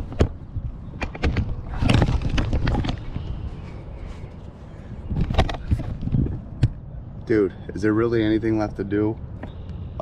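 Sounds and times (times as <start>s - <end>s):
wind rumble on microphone: 0.0s - 7.2s
camera handling knocks and rubbing: 1.0s - 3.3s, 5.1s - 6.8s.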